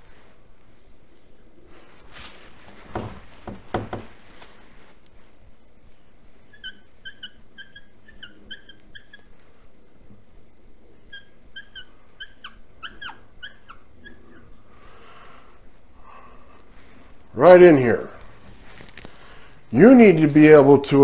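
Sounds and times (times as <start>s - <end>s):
whiteboard marker squeaking: 6.5s - 9.3s, 11.0s - 14.5s.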